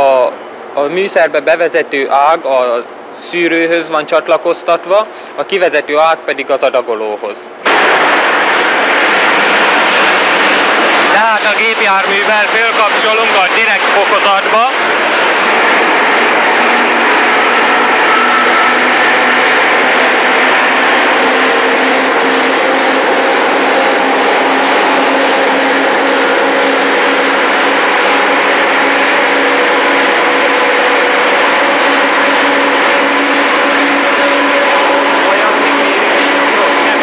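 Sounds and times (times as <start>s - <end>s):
diesel engine running under load: 7.6s - 37.0s.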